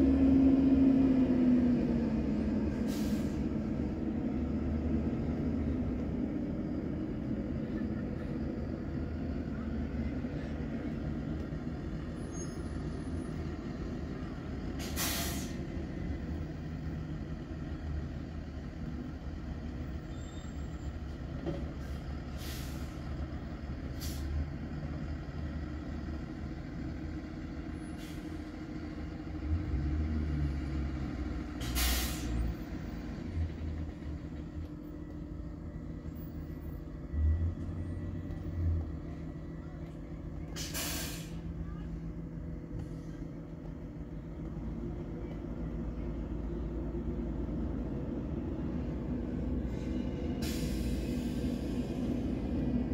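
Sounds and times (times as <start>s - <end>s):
bus engines idling: 0.0s - 52.9s
air brakes hissing: 2.7s - 3.6s, 14.8s - 15.7s, 21.8s - 23.1s, 24.0s - 24.4s, 27.8s - 28.5s, 31.6s - 32.5s, 40.5s - 41.6s, 49.6s - 52.3s.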